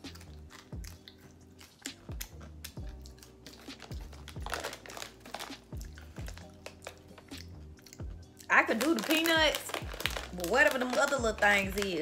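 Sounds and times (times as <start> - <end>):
music with kick drum and bass: 1.9 - 8.3, 9.4 - 12.0
plastic snack bag crinkling: 3.1 - 7.5, 8.5 - 12.0.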